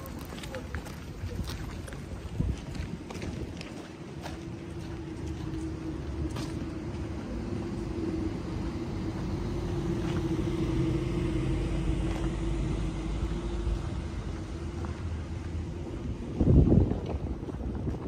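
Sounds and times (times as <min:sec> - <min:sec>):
vehicle engine rumble: 0:00.0 - 0:18.0
steady hum: 0:04.0 - 0:17.8.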